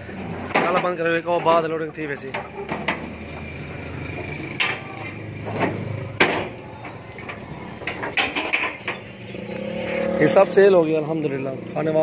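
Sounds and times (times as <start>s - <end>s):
knocks and clatter of goats handled: 0.3s - 9.2s.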